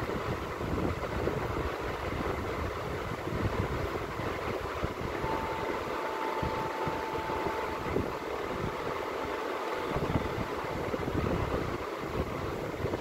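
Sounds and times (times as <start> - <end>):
rushing background noise: 0.0 - 13.0
faint steady tone: 5.1 - 11.2.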